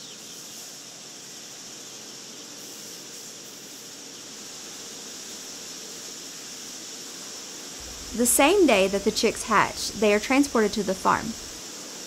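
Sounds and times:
conveyor machinery running: 7.8 - 11.6.

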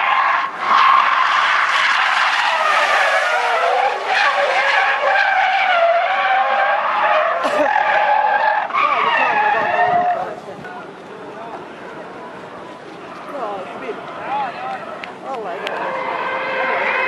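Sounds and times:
car tyres squealing: 0.0 - 10.5, 14.7 - 17.0.

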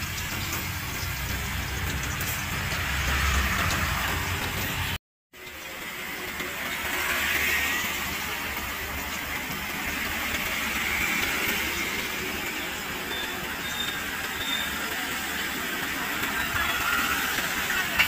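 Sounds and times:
food deep-frying in oil: 0.0 - 18.0.

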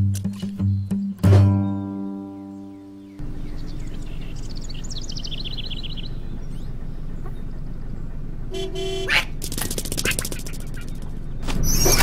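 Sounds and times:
birds chirping: 0.0 - 12.0
bus engine idling: 3.2 - 9.4
horn honk: 8.5 - 9.4
loud rapid clattering: 9.4 - 11.1.

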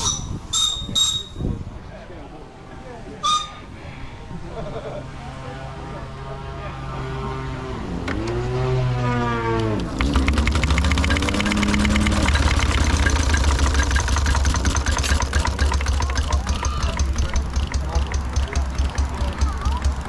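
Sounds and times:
steam engine exhaust beats: 5.8 - 20.0.

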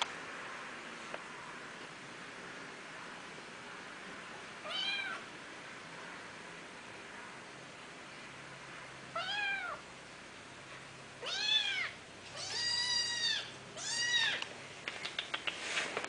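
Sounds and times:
kitten meowing: 4.6 - 5.2, 11.2 - 14.4.

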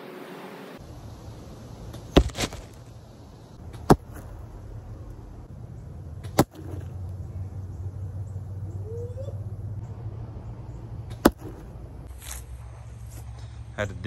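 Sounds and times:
arrows striking foam target: 1.9 - 2.8, 3.6 - 4.4, 6.2 - 7.0, 11.1 - 12.4.

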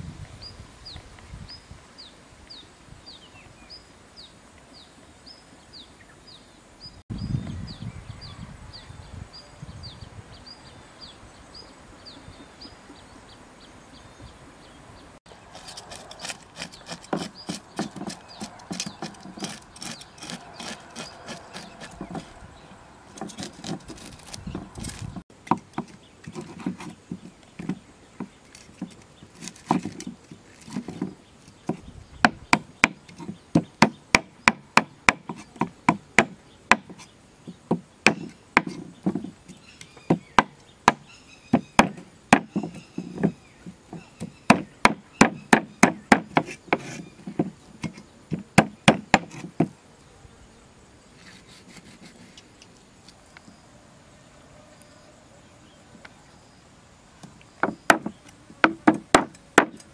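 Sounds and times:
knife scraping fish scales: 15.5 - 22.4, 23.1 - 25.2, 51.2 - 52.5.

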